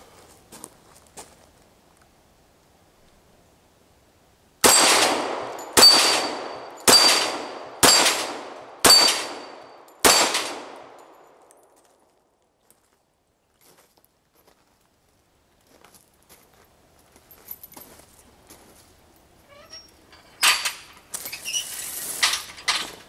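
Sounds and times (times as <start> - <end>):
steel plate ringing: 4.6 - 8.2, 8.8 - 10.3
pistol shots: 4.6 - 11.2.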